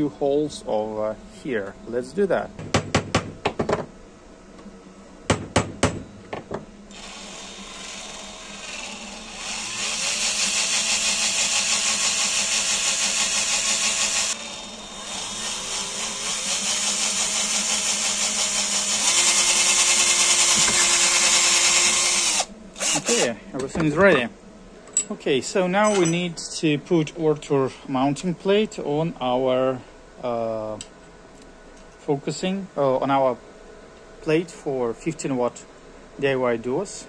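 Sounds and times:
cordless drill boring: 6.9s - 23.3s.

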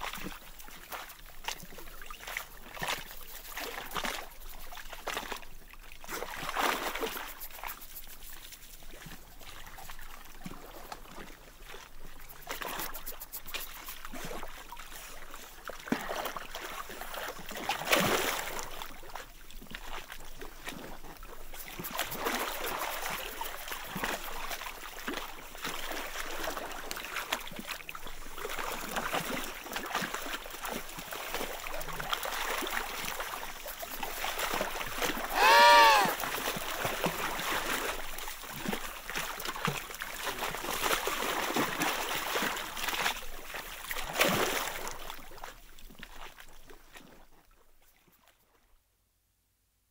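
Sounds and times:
penguins splashing in water: 34.2s - 38.0s
penguin call: 35.3s - 36.2s.

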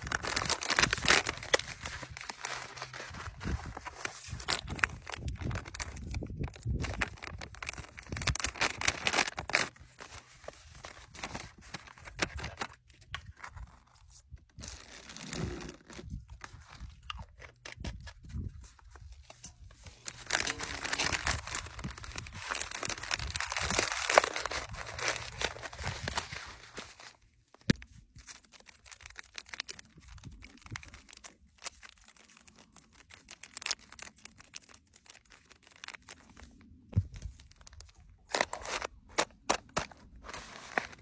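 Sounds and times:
plastic bag tearing and crinkling: 0.0s - 13.7s, 14.6s - 18.0s, 19.9s - 36.7s, 37.3s - 41.0s
water pouring into bag: 20.0s - 25.7s.

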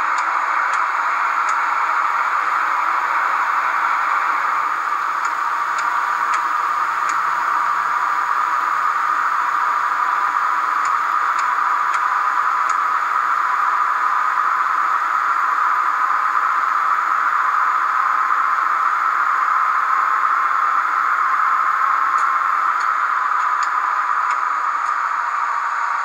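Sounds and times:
steady hiss from small speaker: 0.0s - 26.0s
faint clicks: 0.1s - 1.7s, 5.2s - 7.2s, 10.8s - 12.8s, 22.1s - 25.0s.

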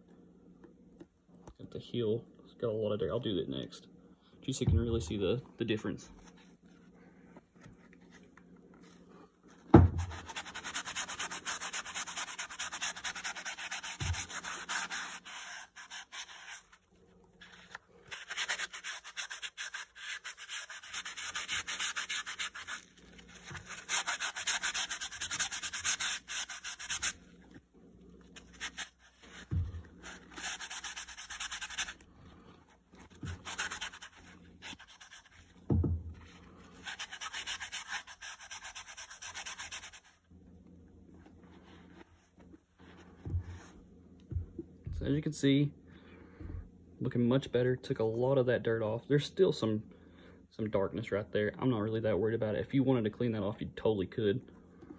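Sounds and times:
dull thumps: 4.6s - 5.2s, 9.6s - 10.3s, 29.2s - 30.4s, 32.9s - 33.6s, 35.4s - 36.4s, 42.8s - 45.2s
eraser scrubbing a sole: 9.9s - 27.6s, 28.2s - 32.1s, 32.7s - 35.7s, 36.7s - 40.2s.

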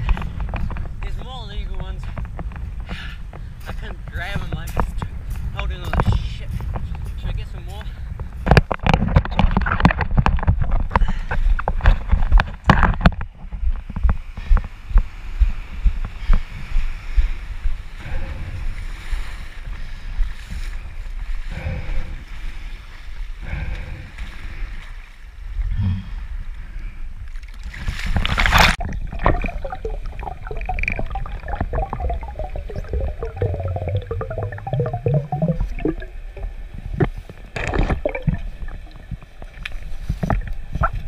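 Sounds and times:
wind buffeting microphone: 0.0s - 24.8s
underwater bubbling and crackling: 27.4s - 41.0s
waves washing: 27.7s - 40.9s
loud splash: 28.3s - 36.5s.

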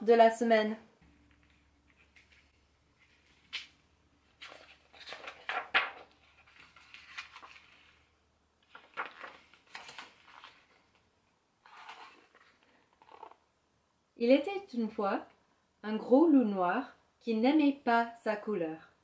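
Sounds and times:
paper pages rustling: 1.3s - 13.4s.

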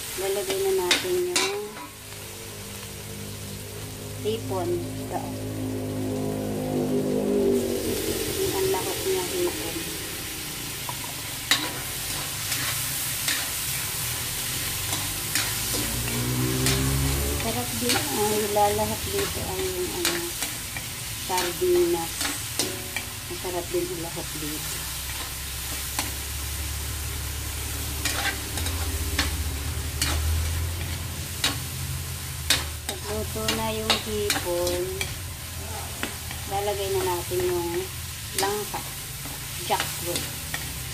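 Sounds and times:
food sizzling in wok: 0.0s - 40.9s
spatula stirring and scraping: 10.8s - 23.1s, 27.8s - 31.8s.

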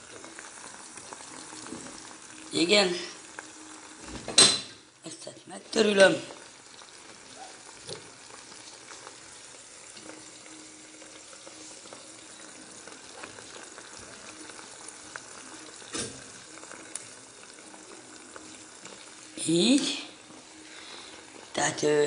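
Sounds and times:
sausages sizzling in a pan: 0.0s - 22.0s.

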